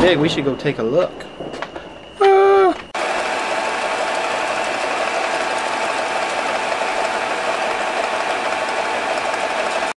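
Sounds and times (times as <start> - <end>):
pulley mechanism running: 3.0 - 9.9.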